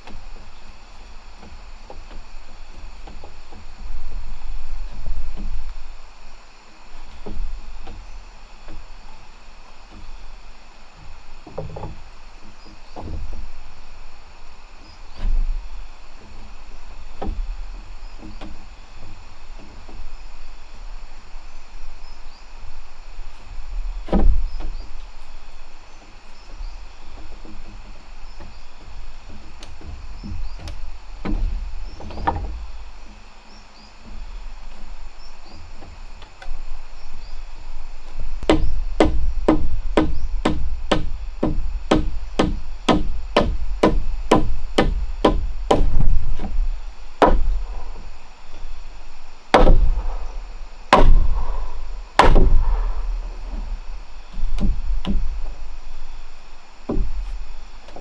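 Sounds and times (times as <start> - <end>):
wooden mallet pounding timber: 1.4 - 5.9, 7.0 - 8.9, 15.1 - 20.0, 23.8 - 25.0, 26.5 - 33.2, 38.0 - 48.6, 49.5 - 55.6, 56.8 - 58.0.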